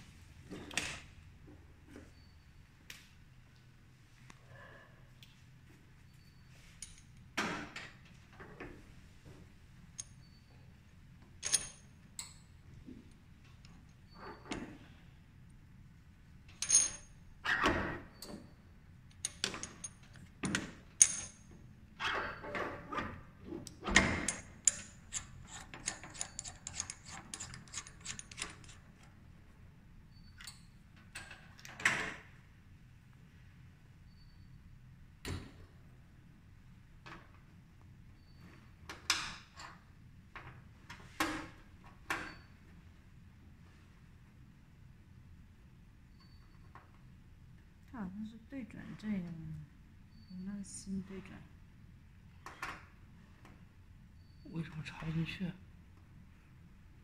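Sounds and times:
metal clinks and knocks: 16.5s - 17.1s, 19.1s - 21.5s, 24.2s - 29.1s.

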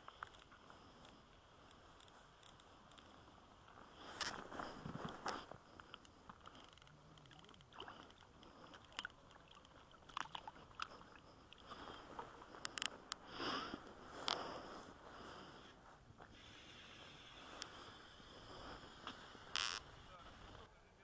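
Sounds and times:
gloved hand handling fishing line: 0.0s - 15.0s
sharp clicks and short scrapes: 4.1s - 11.0s.

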